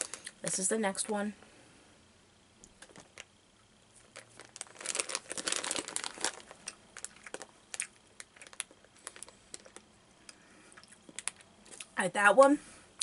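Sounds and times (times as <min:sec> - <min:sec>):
plastic packet crinkling: 0:00.0 - 0:00.6, 0:02.8 - 0:03.3, 0:04.0 - 0:09.9, 0:10.8 - 0:11.9.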